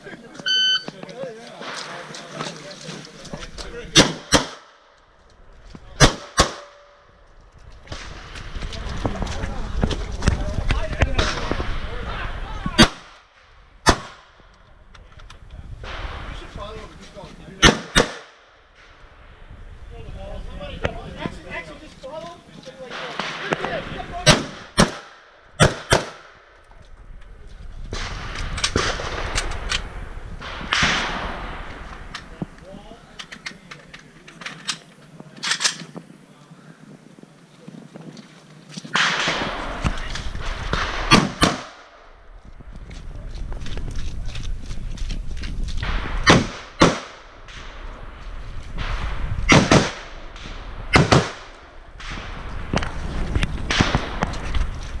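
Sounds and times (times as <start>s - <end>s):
rifle shots with echo: 3.9s - 4.9s, 6.0s - 7.0s, 12.8s - 14.4s, 17.6s - 18.5s, 22.9s - 26.5s, 27.9s - 29.8s, 30.4s - 31.9s, 38.9s - 42.2s, 45.8s - 48.0s, 48.8s - 52.9s, 53.7s - 54.4s
footsteps on dirt: 42.3s - 46.2s, 52.4s - 55.0s.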